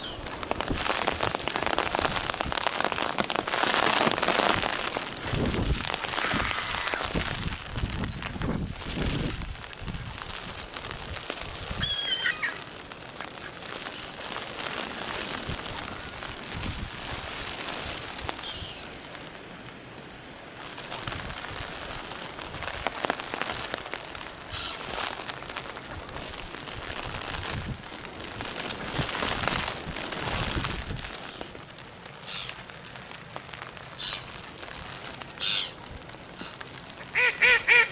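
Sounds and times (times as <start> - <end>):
duck calls: 35.4 - 35.7, 37.1 - 37.9.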